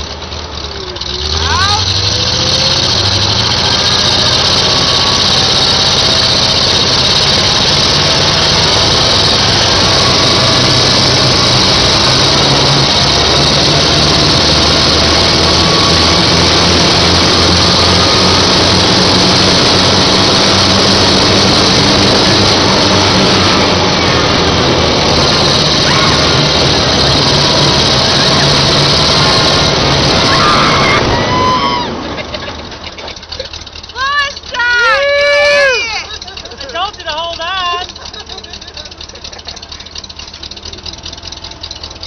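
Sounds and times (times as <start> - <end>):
tank engine running: 0.0 - 42.0.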